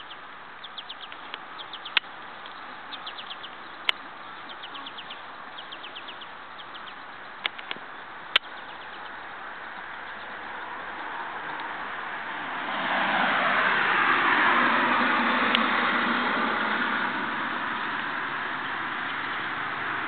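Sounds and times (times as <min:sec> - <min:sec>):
songbird chirping: 0:00.0 - 0:12.1, 0:17.4 - 0:20.0
steady background noise: 0:00.0 - 0:20.0
sharp clicks: 0:01.0 - 0:02.6, 0:03.8 - 0:04.0, 0:07.4 - 0:08.6.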